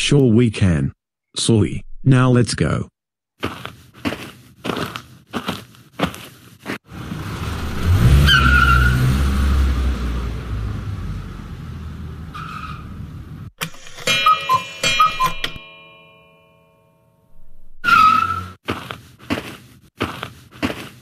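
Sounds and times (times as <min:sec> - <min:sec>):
cartoon car engine rumble: 0:06.9 - 0:13.5
tire squeal: 0:07.8 - 0:09.6, 0:12.3 - 0:13.1, 0:17.8 - 0:18.6.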